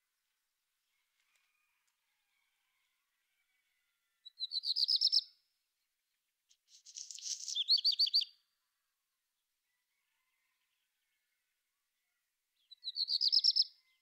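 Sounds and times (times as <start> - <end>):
songbird singing high notes: 7.0 - 8.3.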